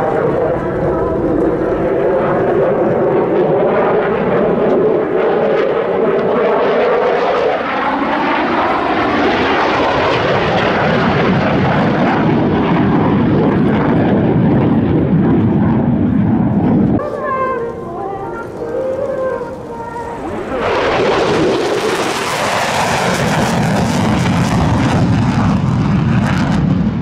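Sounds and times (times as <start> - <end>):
fighter jet flying past: 0.0 - 27.0
rushing jet noise: 6.9 - 27.0.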